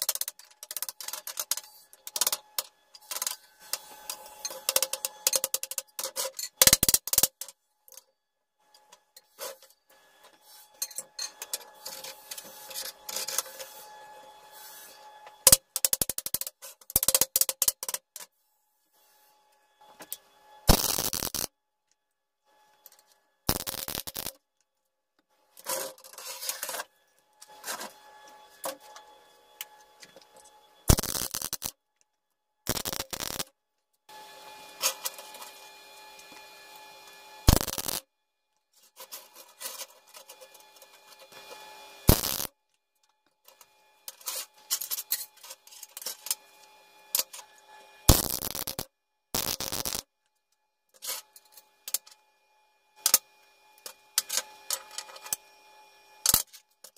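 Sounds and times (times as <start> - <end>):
welder hum: 19.9 - 21.5, 23.5 - 24.3, 27.4 - 31.7, 32.7 - 33.4, 34.1 - 38.0, 39.2 - 42.5, 44.0 - 48.8, 49.4 - 50.0
welding arc crackling: 20.7 - 21.5, 23.5 - 24.4, 30.9 - 31.7, 32.7 - 33.5, 37.4 - 38.0, 42.0 - 42.5, 48.1 - 50.0.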